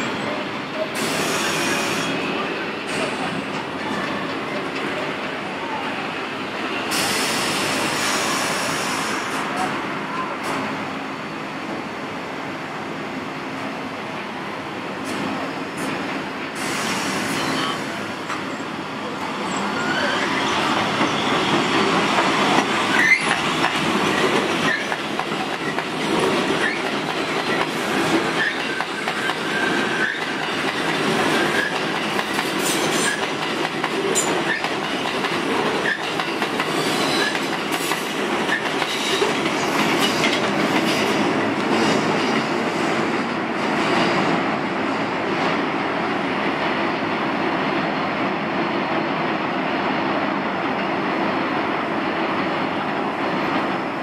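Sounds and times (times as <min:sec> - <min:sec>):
subway train rumbling past: 0:00.0 - 0:54.0
faint wheel squeal: 0:19.5 - 0:21.3.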